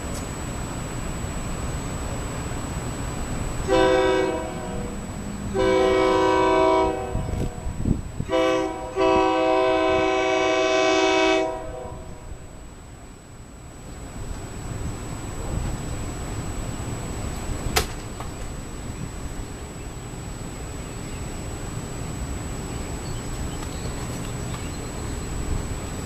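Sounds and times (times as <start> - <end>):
train horn blasts: 3.6 - 12.6.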